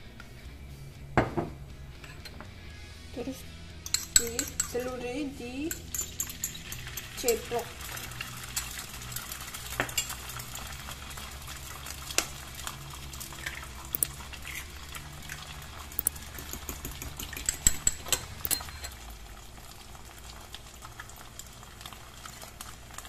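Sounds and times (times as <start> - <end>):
egg sizzling in a pan: 5.8 - 23.0
sharp crackles and pops: 7.9 - 17.3.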